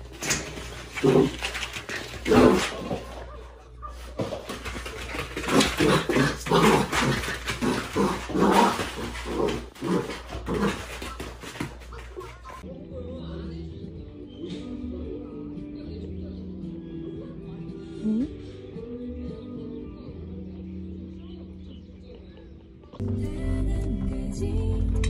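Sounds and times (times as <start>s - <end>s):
puppy barking and growling: 5.3s - 11.1s.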